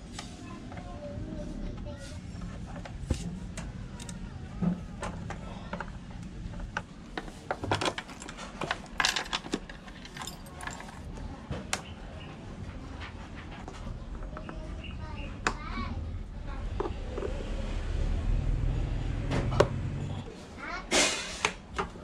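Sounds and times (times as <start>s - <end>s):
metal tools clinking and rattling: 7.2s - 11.2s.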